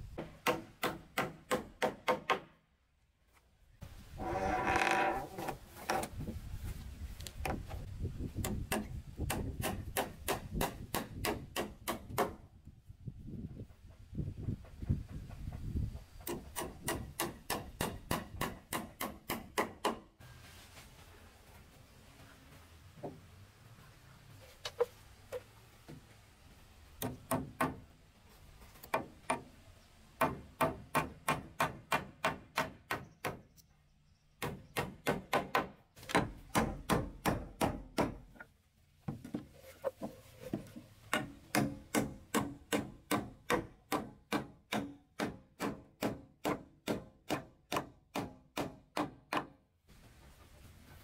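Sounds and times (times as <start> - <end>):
hammer driving nails into wood: 0.2 - 2.6, 8.4 - 12.4, 34.4 - 38.5, 41.1 - 49.6.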